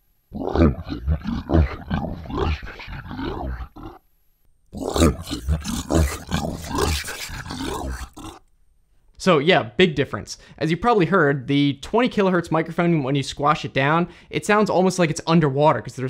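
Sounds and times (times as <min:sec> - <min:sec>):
deep growling monster voice: 0:00.3 - 0:04.0, 0:04.8 - 0:08.4.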